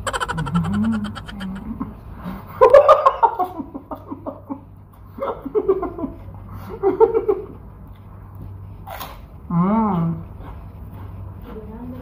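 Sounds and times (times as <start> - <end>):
person laughing: 0.0 - 1.6.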